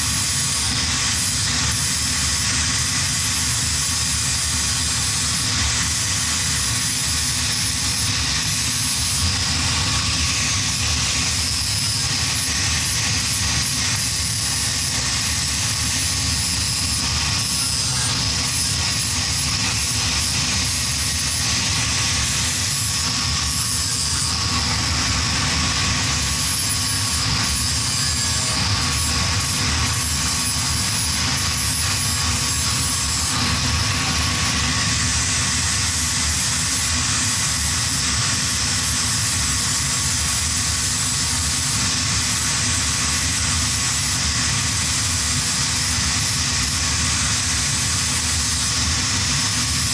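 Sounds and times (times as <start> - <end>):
angle grinder grinding metal: 0.0 - 49.9.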